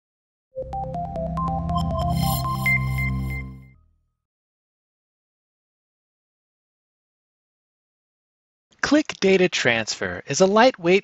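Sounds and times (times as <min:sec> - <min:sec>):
quick synthesizer notes: 0:00.6 - 0:03.8.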